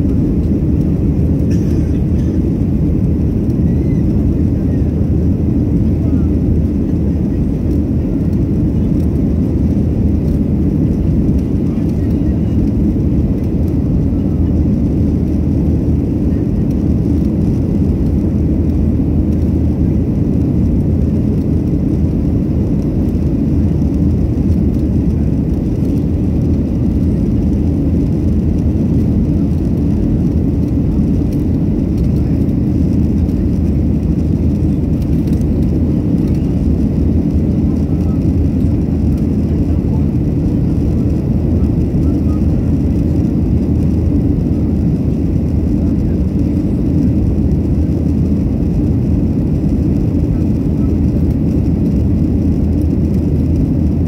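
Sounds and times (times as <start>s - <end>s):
airplane cabin engine rumble: 0.0s - 54.0s.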